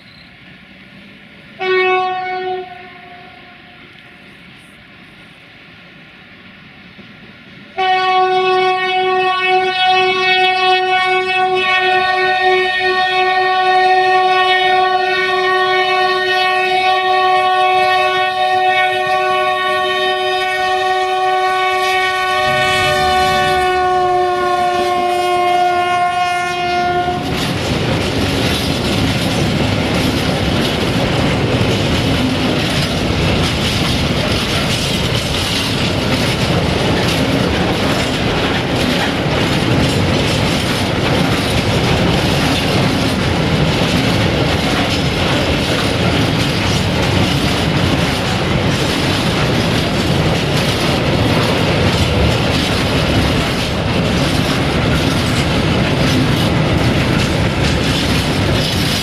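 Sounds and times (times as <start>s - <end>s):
diesel locomotive horn: 1.6s - 4.7s, 7.8s - 27.5s
wheels clacking over rail joints: 12.9s - 59.0s
freight wagons rumbling past: 20.8s - 25.7s, 26.8s - 59.0s.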